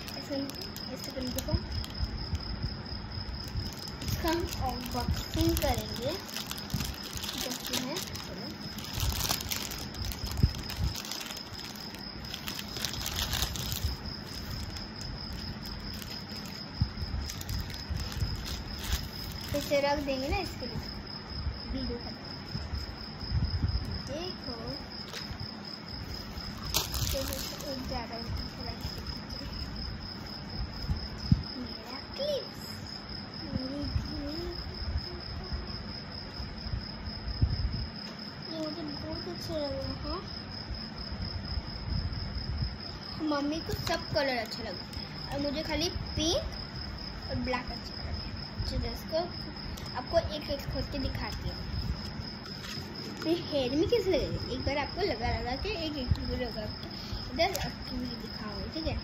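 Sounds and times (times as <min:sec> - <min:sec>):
plastic packaging crinkling: 0:00.0 - 0:02.1, 0:03.4 - 0:20.6, 0:25.1 - 0:25.4, 0:26.2 - 0:29.6, 0:43.6 - 0:45.6, 0:51.1 - 0:53.5, 0:57.3 - 0:58.4
faint steady high whine: 0:00.0 - 0:59.0
card rustling and bumping: 0:25.0 - 0:25.4, 0:26.1 - 0:29.8, 0:51.2 - 0:53.4.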